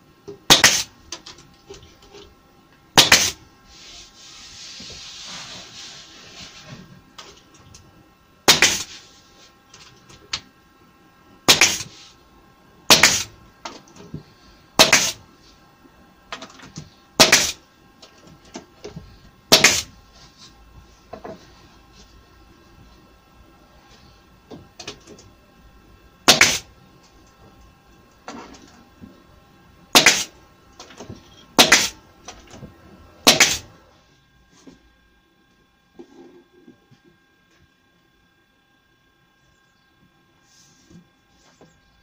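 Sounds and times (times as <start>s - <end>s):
pneumatic stapler shots: 0.5s - 0.9s, 3.0s - 3.4s, 8.5s - 9.0s, 11.5s - 12.0s, 12.9s - 13.3s, 14.8s - 15.2s, 17.2s - 17.6s, 19.5s - 19.9s, 26.2s - 26.7s, 29.9s - 30.3s, 31.6s - 32.0s, 33.2s - 33.7s.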